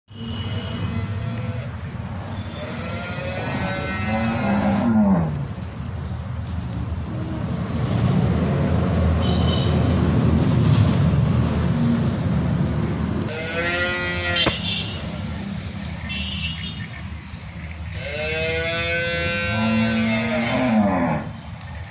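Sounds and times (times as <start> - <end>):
cow mooing: 2.6 - 5.4, 13.3 - 14.6, 18.0 - 21.3.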